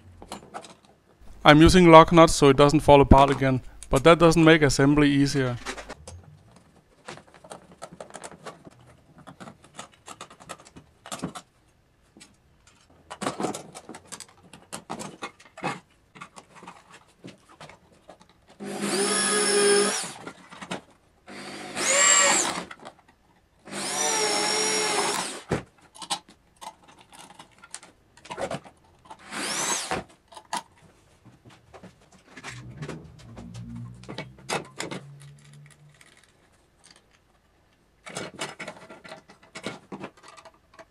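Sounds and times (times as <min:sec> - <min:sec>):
electric drill boring plastic: 0:18.6 - 0:20.3, 0:21.3 - 0:22.7, 0:23.7 - 0:25.6, 0:29.2 - 0:30.1.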